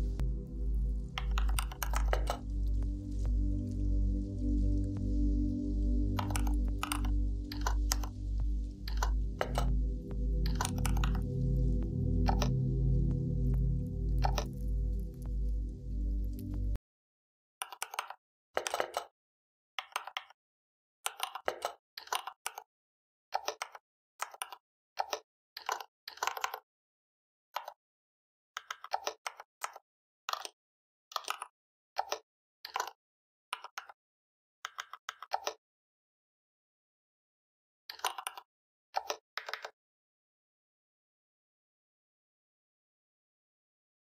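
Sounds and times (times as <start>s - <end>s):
keyboard typing: 1.1s - 2.5s, 6.2s - 8.2s, 8.8s - 9.8s, 10.5s - 12.7s, 37.9s - 39.8s.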